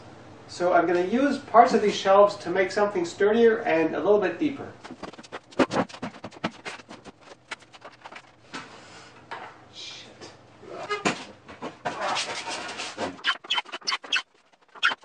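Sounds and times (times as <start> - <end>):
wooden boards knocking and clattering: 4.8 - 8.4.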